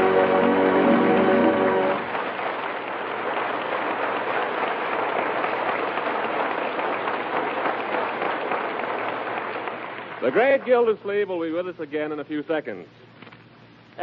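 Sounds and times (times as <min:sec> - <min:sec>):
music cue: 0:00.0 - 0:02.1
audience applause: 0:00.0 - 0:11.2.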